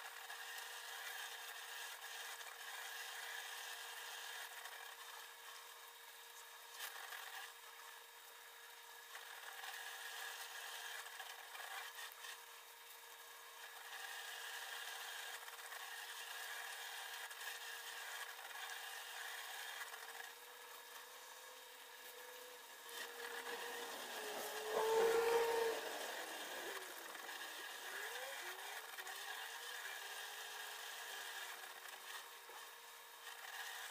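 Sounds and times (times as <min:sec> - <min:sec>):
faint steady hum: 0:20.3 - 0:30.8.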